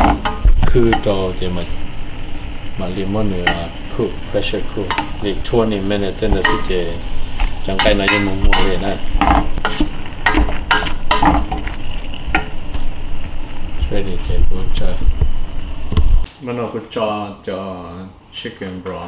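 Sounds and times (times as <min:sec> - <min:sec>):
meat sizzling: 0:00.0 - 0:16.3
spatula scraping metal pot: 0:07.7 - 0:12.5.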